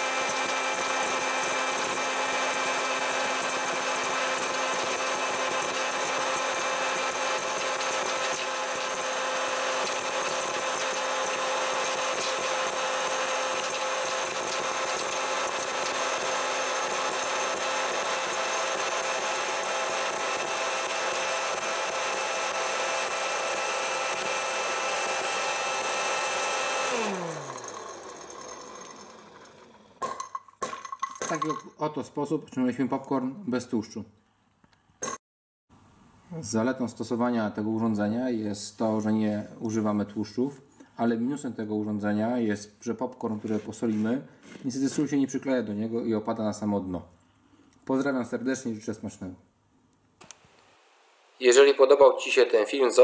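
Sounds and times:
popcorn maker fan and motor drone: 0.0s - 30.0s.

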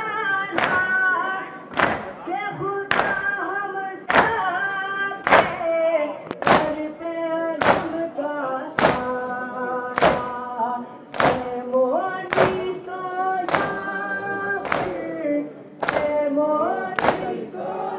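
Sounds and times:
hands slapping chests: 0.6s - 0.9s, 1.7s - 2.2s, 2.9s - 3.3s, 4.1s - 4.4s, 5.2s - 5.6s, 6.3s - 6.8s, 7.6s - 8.0s, 8.8s - 9.2s, 9.9s - 10.4s, 11.1s - 12.8s, 13.4s - 13.9s, 14.6s - 15.1s, 15.8s - 16.2s, 17.0s - 17.4s
crowd of men chanting: 12.3s - 15.2s, 15.8s - 17.9s.

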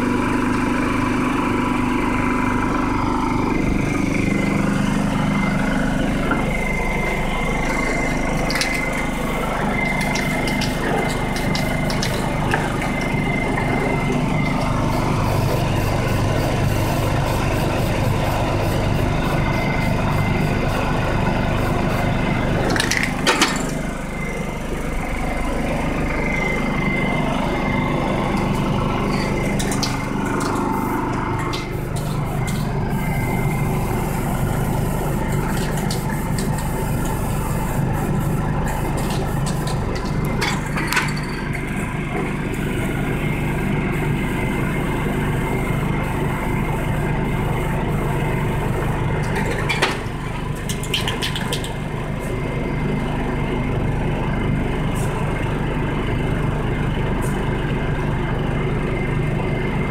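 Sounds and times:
generator engine humming: 0.0s - 59.9s
spray-paint can hissing: 9.2s - 23.1s, 29.2s - 31.0s, 31.6s - 40.4s.

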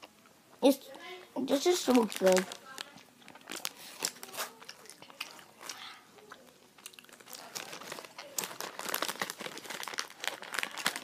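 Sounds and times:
plastic bag crinkling: 1.5s - 5.9s, 6.8s - 11.0s
child chewing candy: 1.5s - 11.0s.

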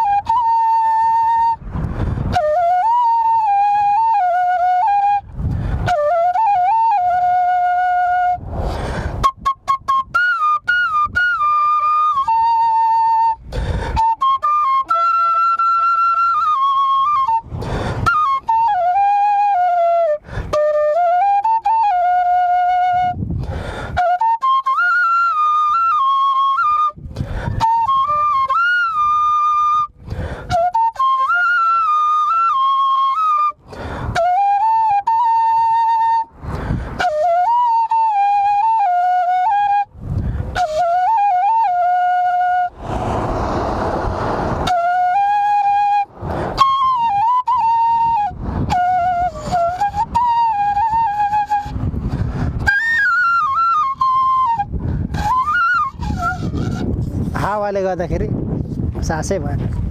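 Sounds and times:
bamboo flute melody: 0.0s - 57.8s
player breathing: 8.6s - 9.2s.

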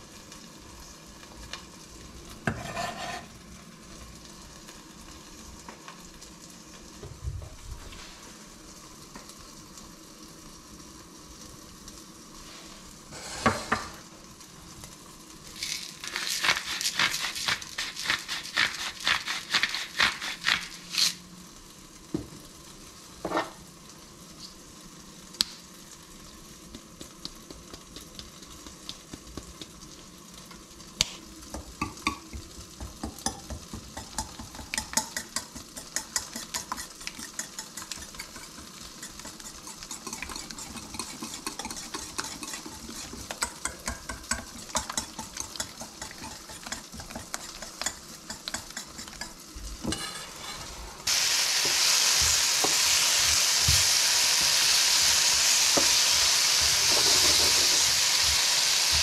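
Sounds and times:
knocks and scrapes in metal bowl: 2.5s - 3.3s, 33.0s - 50.7s
salt mill crunching: 15.6s - 21.2s
stirring ticks in metal bowl: 31.8s - 50.2s.

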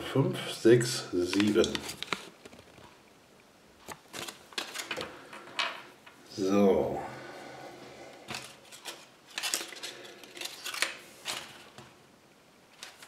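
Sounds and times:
paper crinkling and rustling: 1.2s - 3.0s, 3.8s - 5.2s, 8.3s - 12.0s, 12.7s - 13.0s.

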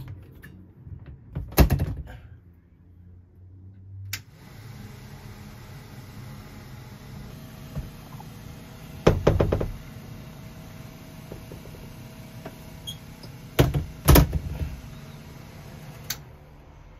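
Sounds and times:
knocks and rattles of partition: 9.0s - 9.8s.

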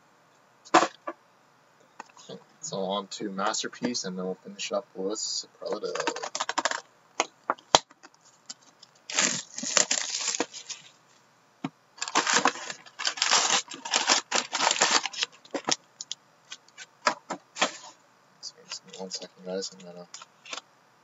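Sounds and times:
plastic wrap crinkling: 5.7s - 6.8s, 7.7s - 11.0s, 12.0s - 16.9s.

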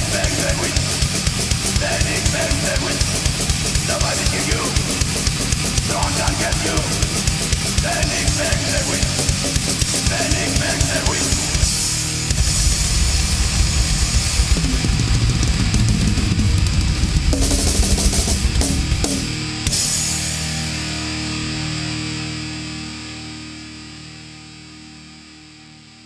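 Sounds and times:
fast pounding drum kit: 0.0s - 20.3s
distorted electric guitars: 0.0s - 26.0s.

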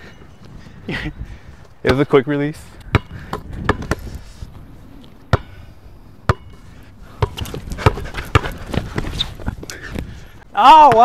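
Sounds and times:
basketball bouncing on hardcourt: 2.9s - 4.0s, 7.2s - 9.2s.

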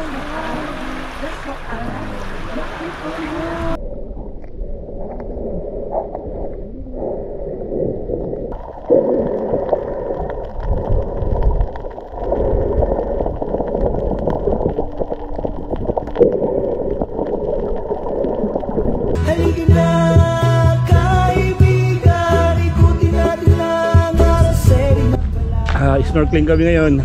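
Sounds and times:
underwater gurgling and bubbling: 0.0s - 19.2s
music: 19.2s - 26.6s.

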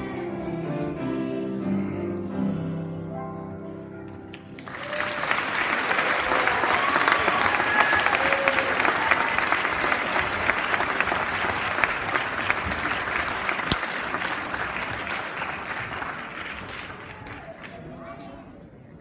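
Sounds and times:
audience applauding: 4.3s - 18.1s.

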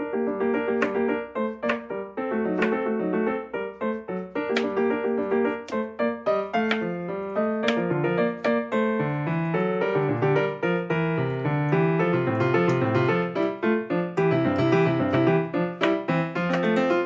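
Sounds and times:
background piano music: 0.0s - 17.0s.

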